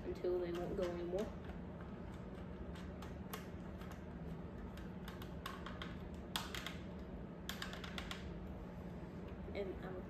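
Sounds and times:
face mask clicks and taps: 0.5 - 8.3.

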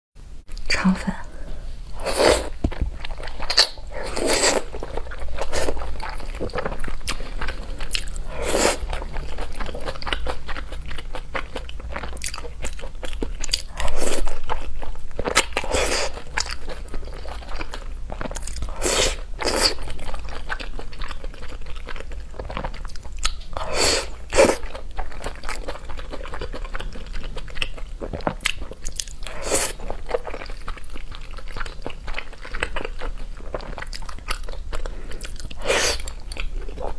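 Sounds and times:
person chewing food: 1.9 - 36.9.

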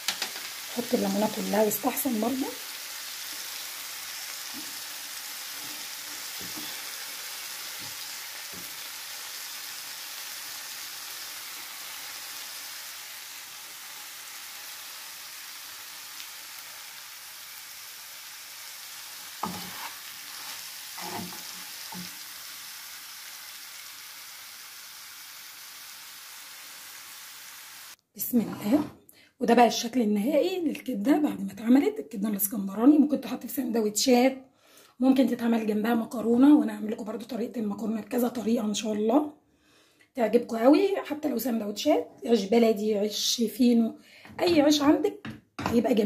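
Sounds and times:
food sizzling in a frying pan: 0.0 - 28.0
spatula knocking and scraping pan: 19.4 - 22.2.

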